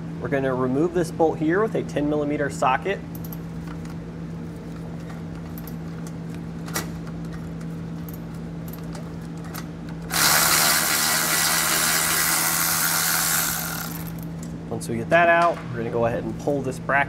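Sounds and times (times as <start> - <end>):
cordless ratchet motor running: 10.1 - 14.3.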